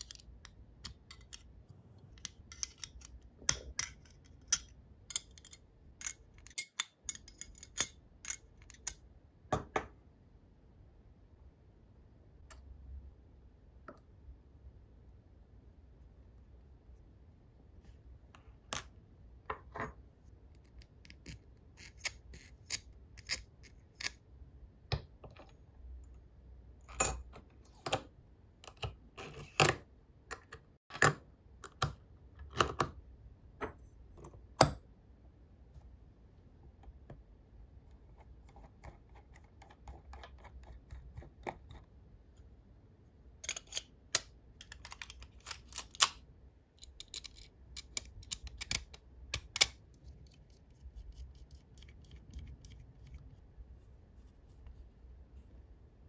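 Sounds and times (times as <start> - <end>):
metal parts clicking together: 46.8 - 49.8.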